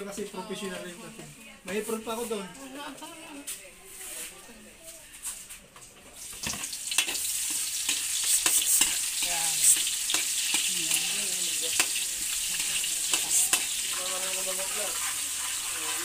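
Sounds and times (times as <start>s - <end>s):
garlic sizzling in oil: 6.2s - 16.0s
utensil clicking against pan: 6.4s - 10.7s, 11.7s - 13.8s.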